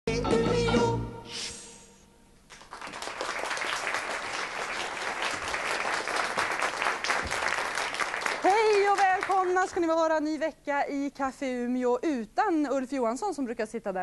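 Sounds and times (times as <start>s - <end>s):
song ending note: 0.1s - 1.8s
audience applause: 2.5s - 9.6s.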